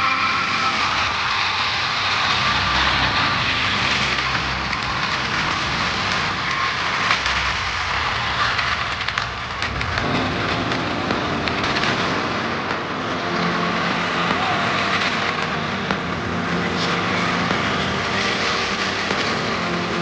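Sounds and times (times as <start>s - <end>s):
crowd din: 0.0s - 20.0s
fireworks crackling and popping: 0.0s - 20.0s.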